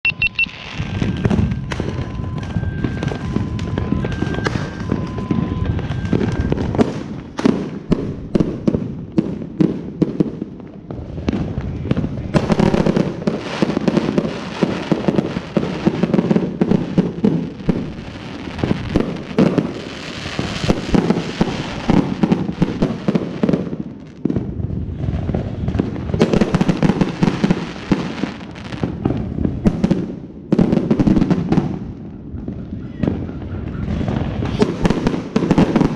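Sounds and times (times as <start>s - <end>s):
two-note beeping: 0.0s - 0.6s
fireworks cracking and banging: 0.3s - 35.9s.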